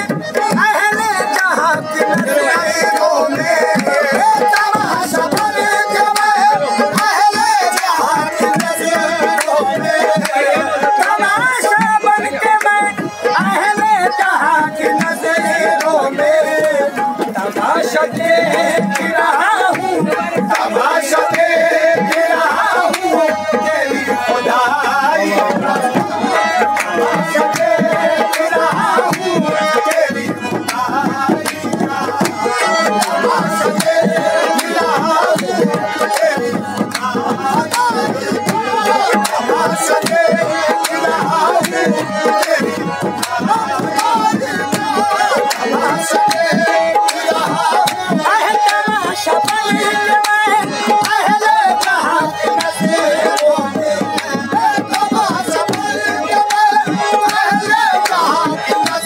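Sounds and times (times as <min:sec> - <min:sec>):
tabla drumming: 0:00.0 - 0:59.0.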